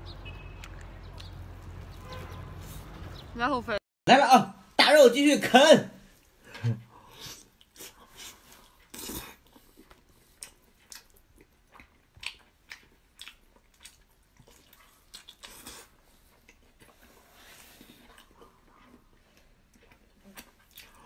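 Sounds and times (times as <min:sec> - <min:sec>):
man chewing with wet mouth clicks: 0:00.5 - 0:01.9, 0:06.2 - 0:21.0.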